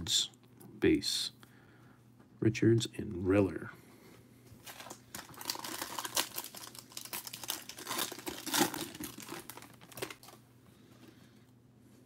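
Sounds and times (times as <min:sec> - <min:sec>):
foil wrapper crinkling: 0:04.6 - 0:10.4.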